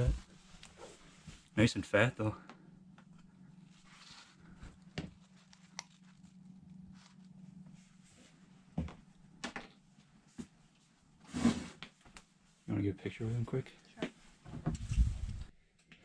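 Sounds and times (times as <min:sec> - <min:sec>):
faint low hum: 0:00.0 - 0:11.2.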